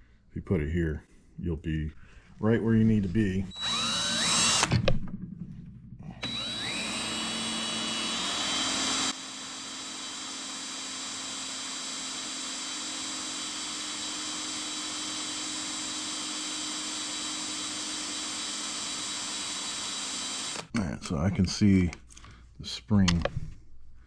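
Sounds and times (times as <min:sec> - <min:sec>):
cordless drill whining: 0:03.5 - 0:04.9, 0:06.2 - 0:20.7.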